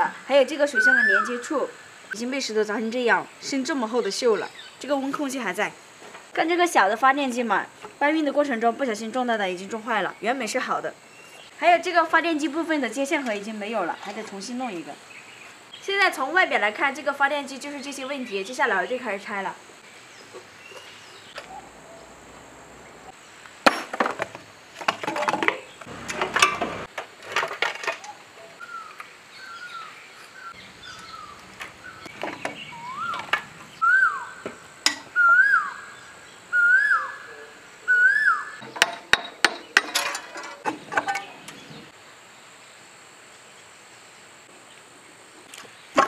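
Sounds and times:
tools clinking on engine parts: 25.0s - 26.7s, 38.6s - 41.3s.

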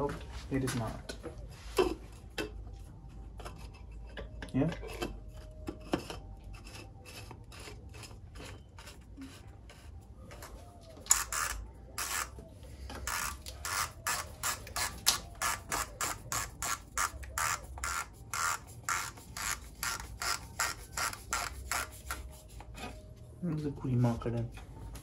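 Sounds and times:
plastic cap threads rasping: 13.0s - 22.3s.

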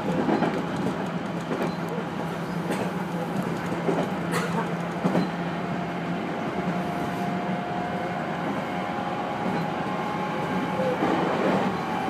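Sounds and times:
electric train running: 0.0s - 12.0s.

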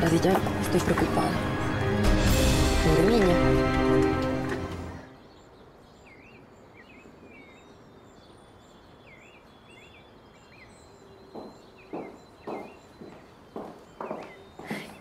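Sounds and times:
small birds chirping: 4.5s - 15.0s
footsteps: 11.3s - 15.0s.

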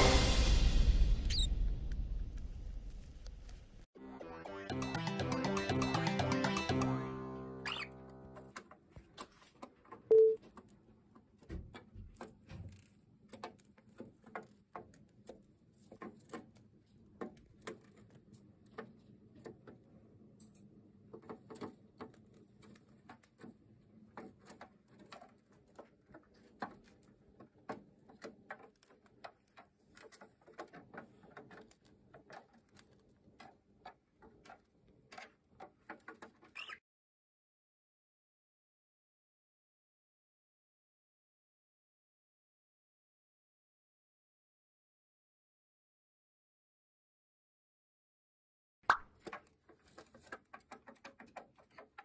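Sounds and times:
loud tone: 10.1s - 10.4s
bird tapping on plastic toy: 49.2s - 52.0s.

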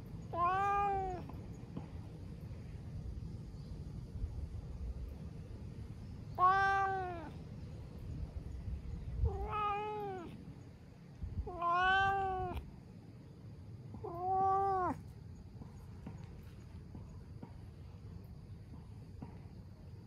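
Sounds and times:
cat meowing: 0.3s - 1.4s, 6.3s - 7.4s, 9.2s - 10.4s, 11.4s - 12.7s, 14.0s - 15.0s.

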